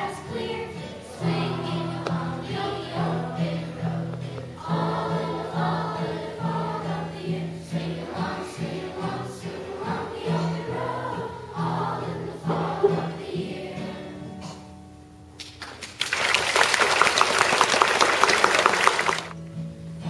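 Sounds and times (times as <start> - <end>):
children's choir singing: 0.0 - 14.4
acoustic guitar: 0.0 - 16.0, 17.0 - 20.0.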